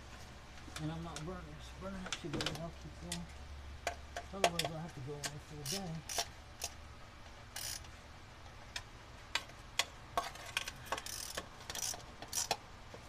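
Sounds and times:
metal tools clicking on engine: 0:02.0 - 0:06.8, 0:07.5 - 0:07.9, 0:08.7 - 0:12.6.

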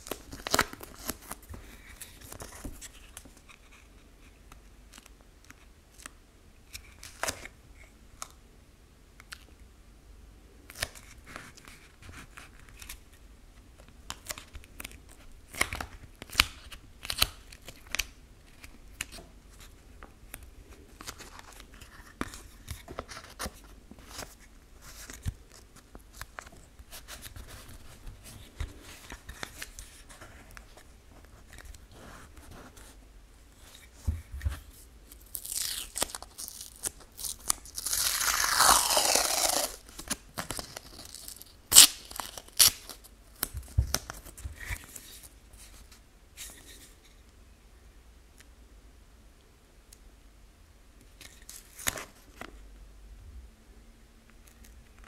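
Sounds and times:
tape ripping: 0:35.2 - 0:44.8.

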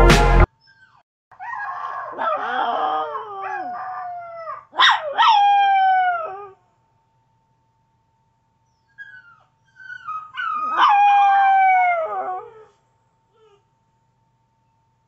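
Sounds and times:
small dog howling: 0:00.7 - 0:06.6, 0:09.0 - 0:12.8.

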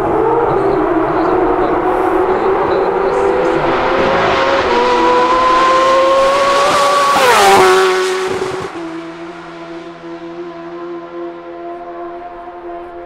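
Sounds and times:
motorcycle accelerating past: 0:02.2 - 0:13.0.

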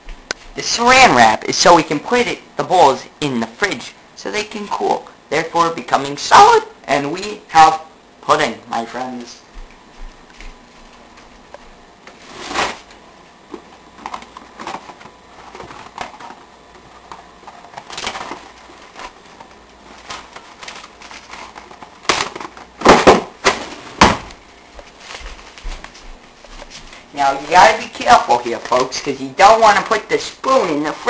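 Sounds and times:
cling wrap crinkling: 0:13.6 - 0:22.8, 0:23.5 - 0:31.0.

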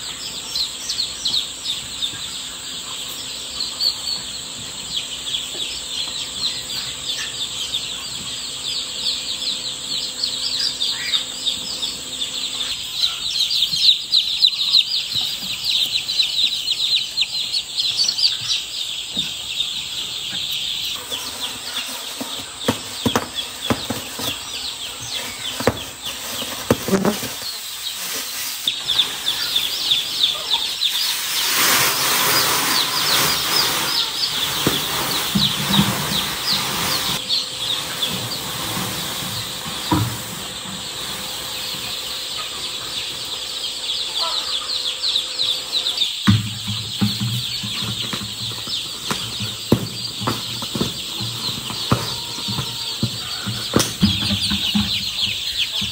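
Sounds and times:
chicks peeping: 0:00.0 - 0:55.9
rustling: 0:21.0 - 0:42.0.

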